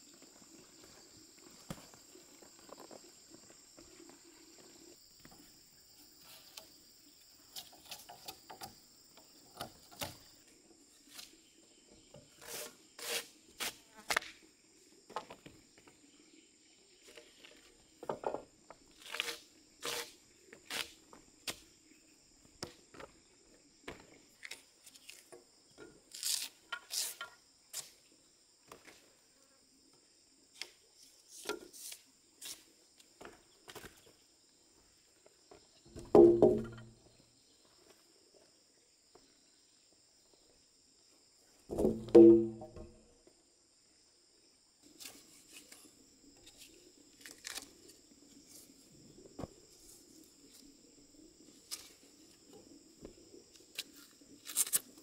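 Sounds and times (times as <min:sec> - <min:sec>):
insects droning: 0:00.0 - 0:55.0
knife scraping a log: 0:12.4 - 0:14.2, 0:19.0 - 0:21.0, 0:26.1 - 0:27.9.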